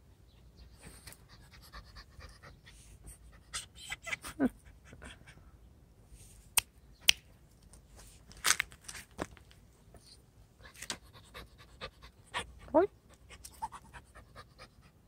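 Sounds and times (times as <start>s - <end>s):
puppy panting: 0.5s - 5.4s, 10.6s - 15.0s.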